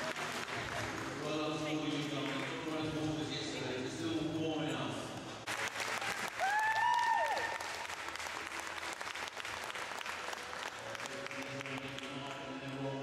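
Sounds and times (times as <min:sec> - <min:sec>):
audience applauding: 0:00.0 - 0:02.8, 0:05.4 - 0:12.5.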